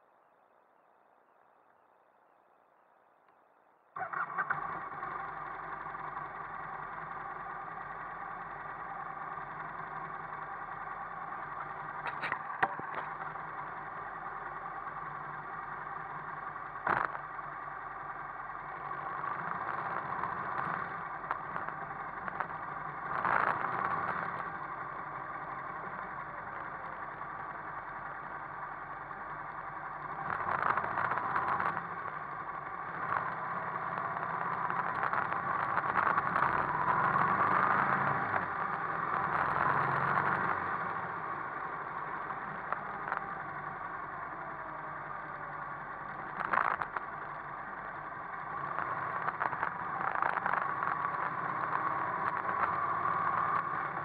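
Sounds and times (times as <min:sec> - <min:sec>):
motorcycle engine running: 0:04.0 - 0:54.0
motorcycles moving off: 0:04.0 - 0:54.0
sharp click: 0:12.1 - 0:13.1.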